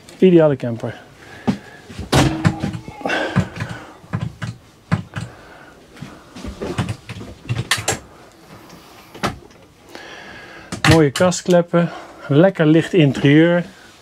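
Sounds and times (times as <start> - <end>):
doors and cupboards knocking: 2.1 - 5.3.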